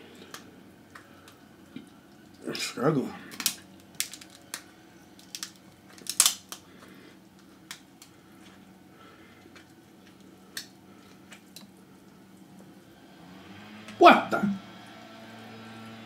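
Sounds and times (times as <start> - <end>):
crab shell cracking: 3.2 - 8.5, 9.4 - 11.8.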